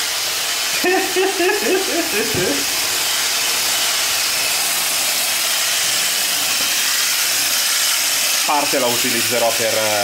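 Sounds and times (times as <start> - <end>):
hand blender whirring: 0.0 - 10.0
man laughing: 0.7 - 2.8.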